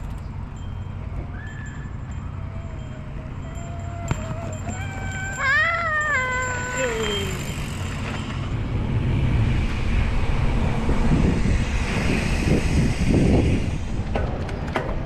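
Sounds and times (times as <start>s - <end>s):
wind buffeting microphone: 6.6s - 15.0s.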